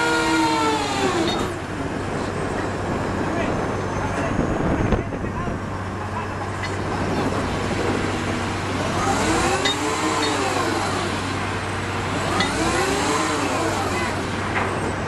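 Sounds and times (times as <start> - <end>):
engine revving: 7.0 - 14.6.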